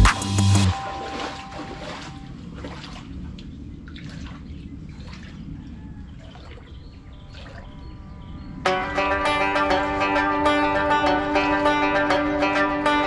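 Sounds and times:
water trickling and sloshing: 0.7s - 8.6s
guitar music: 8.6s - 13.0s.

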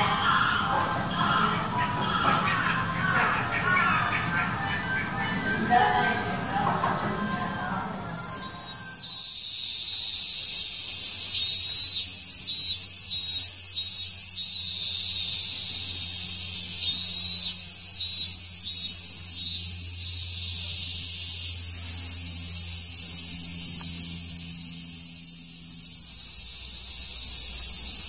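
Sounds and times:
cicadas buzzing: 0.0s - 28.0s
low steady hum: 11.0s - 28.0s.

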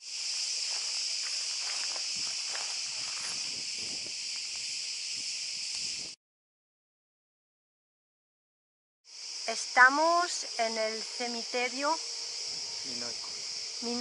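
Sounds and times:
cicadas chirring: 0.0s - 6.2s, 9.1s - 14.0s
footsteps on dry ground: 0.2s - 4.7s.

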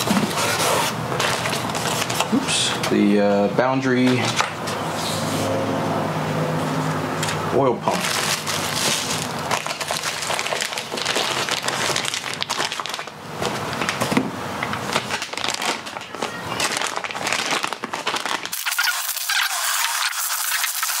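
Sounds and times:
plastic packaging crinkling: 0.0s - 2.4s, 7.9s - 21.0s.

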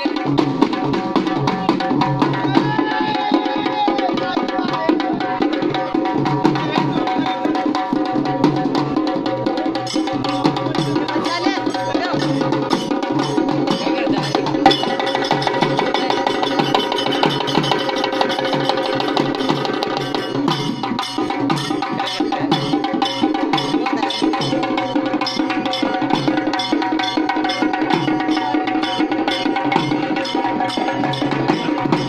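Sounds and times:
drum beaten in fast rhythm: 0.0s - 32.0s.

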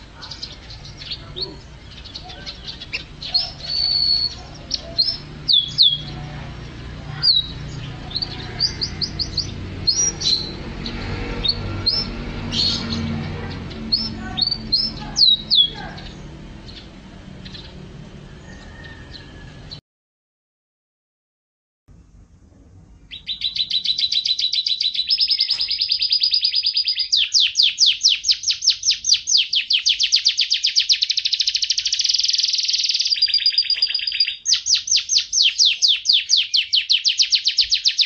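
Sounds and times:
canary singing: 0.0s - 19.8s, 23.0s - 38.0s
low steady hum: 21.9s - 24.3s.

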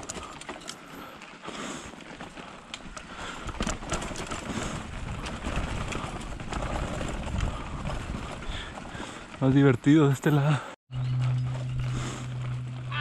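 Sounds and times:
bike rattling: 0.0s - 13.0s
wind rumble on microphone: 4.5s - 9.0s.

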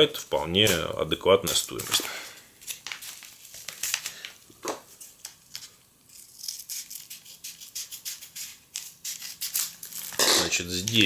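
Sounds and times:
packaging rustling: 1.5s - 5.8s.

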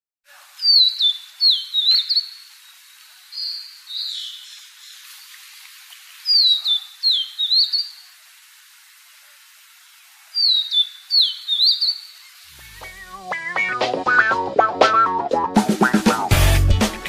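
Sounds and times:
bird whistling song: 0.6s - 4.9s, 6.2s - 8.0s, 10.4s - 13.6s.

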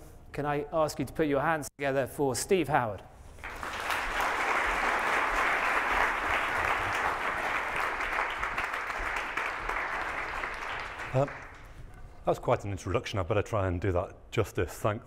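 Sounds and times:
audience applauding: 3.4s - 11.8s.

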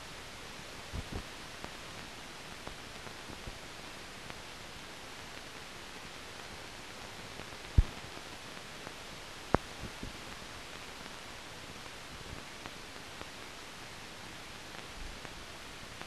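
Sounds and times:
old film soundtrack hiss: 0.0s - 16.0s
faint clicks: 8.8s - 10.4s.

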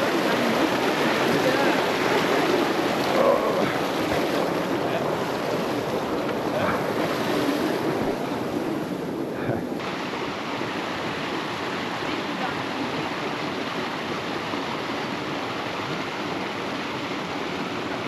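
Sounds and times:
stream running over stones: 0.0s - 18.0s.

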